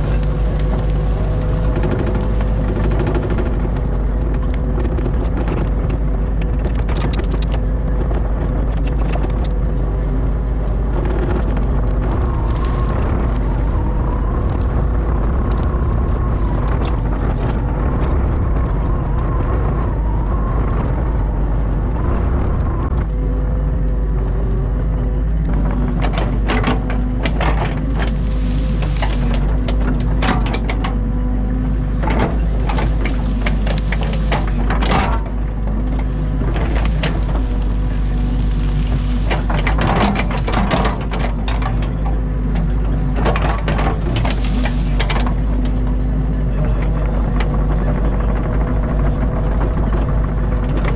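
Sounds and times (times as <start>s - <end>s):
sharp clicks and knocks: 0.0s - 13.4s, 25.3s - 31.1s, 32.0s - 46.0s
excavator diesel engine running: 0.0s - 50.9s.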